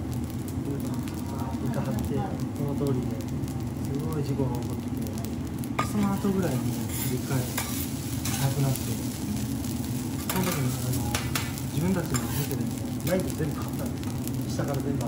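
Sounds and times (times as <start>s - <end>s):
rice sizzling: 0.0s - 15.0s
metal spatulas scraping griddle: 6.5s - 8.6s, 10.2s - 12.5s.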